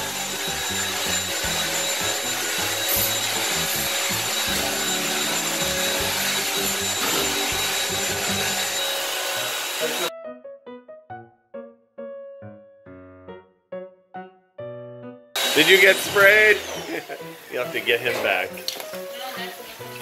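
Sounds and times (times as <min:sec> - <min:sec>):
floor vacuum running: 0:00.0 - 0:10.1, 0:15.4 - 0:19.9.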